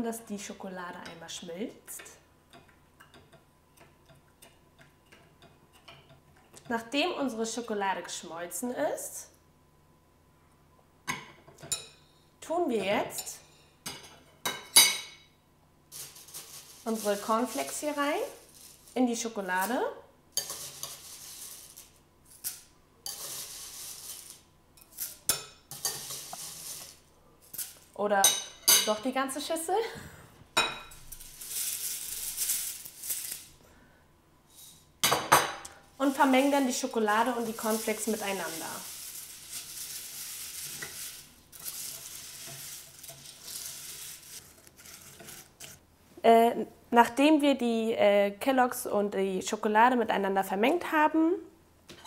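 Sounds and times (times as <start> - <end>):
cornflakes rustling: 15.9 - 19.7, 20.5 - 25.2, 25.8 - 28.0, 31.0 - 33.6, 36.0 - 45.8
spoon scraping bowl: 20.4 - 27.8, 36.0 - 45.8.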